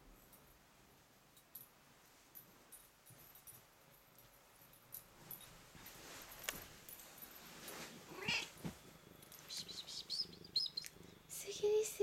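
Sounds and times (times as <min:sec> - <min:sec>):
light clicks and soft knocks: 0:01.3 - 0:09.7.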